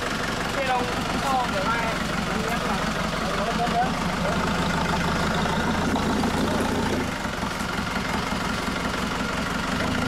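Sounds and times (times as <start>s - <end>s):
pickup engine idling: 0.0s - 10.0s.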